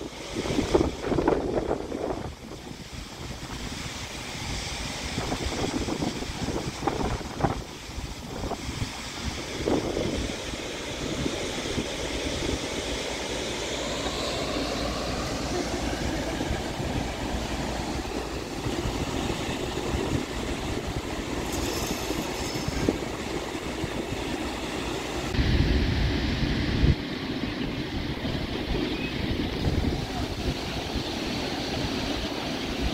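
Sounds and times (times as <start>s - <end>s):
wind buffeting microphone: 0.0s - 32.9s
river water rushing: 3.2s - 25.4s.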